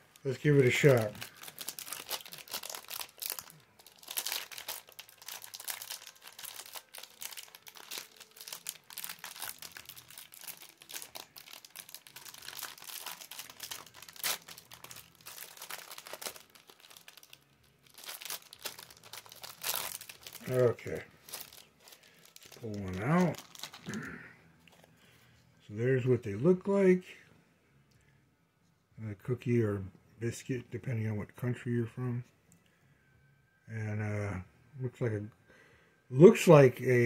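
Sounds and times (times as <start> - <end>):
plastic wrapper crinkling: 0.0 - 24.9.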